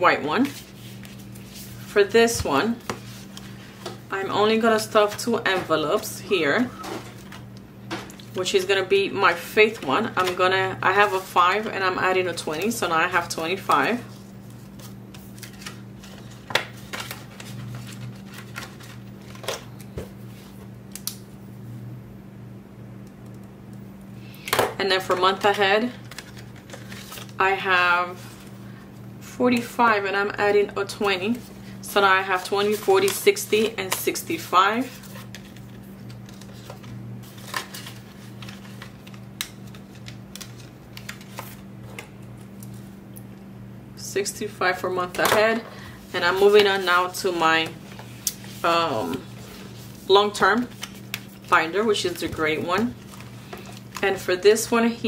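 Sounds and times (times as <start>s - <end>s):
paper banknotes crinkling: 13.5s - 19.6s, 25.3s - 27.4s, 34.8s - 41.6s, 47.8s - 54.4s.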